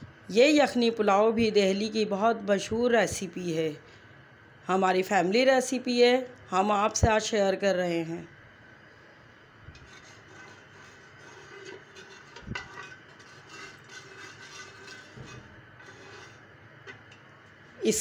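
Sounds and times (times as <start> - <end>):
oil crackling in pot: 9.8 - 17.6.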